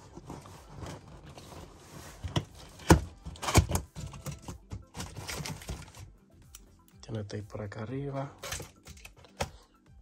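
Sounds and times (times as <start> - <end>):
cardboard scraping: 0.0 - 3.7.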